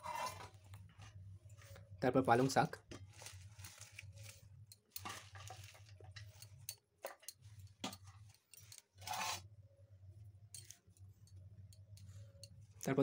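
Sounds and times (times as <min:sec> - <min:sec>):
spinach rustling in steel bowl: 0:02.3 - 0:07.5.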